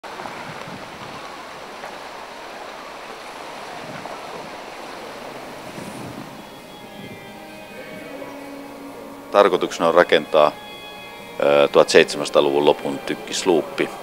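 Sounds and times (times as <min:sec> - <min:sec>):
wind noise on microphone: 0:00.0 - 0:02.0, 0:03.4 - 0:08.3
choppy sea water: 0:00.0 - 0:14.0.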